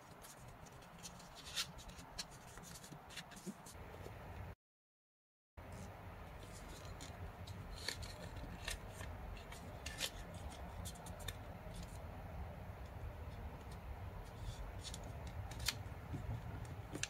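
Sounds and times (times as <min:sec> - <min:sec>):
paper rustling and crinkling: 0:00.0 - 0:03.8, 0:06.5 - 0:12.0.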